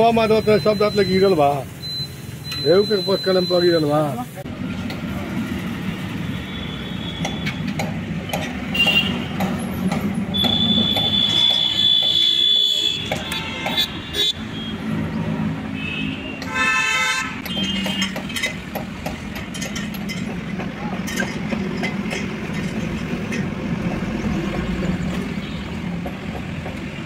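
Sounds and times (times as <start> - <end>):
passing road traffic: 0.0 - 27.0
high horn blast: 15.8 - 17.6.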